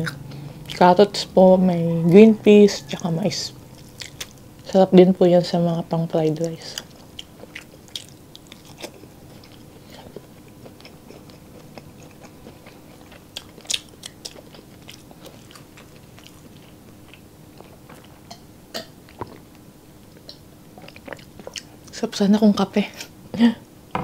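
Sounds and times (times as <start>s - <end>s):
chewing food with mouth smacks: 0.0s - 0.9s, 2.9s - 4.7s, 6.3s - 22.0s.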